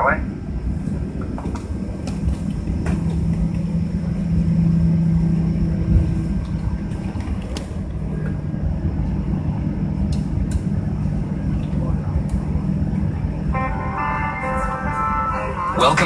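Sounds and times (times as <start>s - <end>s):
airplane cabin rumble and hum: 0.0s - 16.0s
higher tone: 13.2s - 16.0s.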